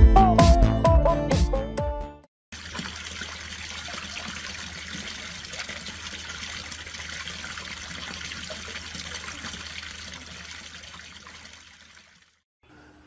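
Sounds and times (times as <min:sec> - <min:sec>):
fountain water splashing: 0:02.5 - 0:12.4.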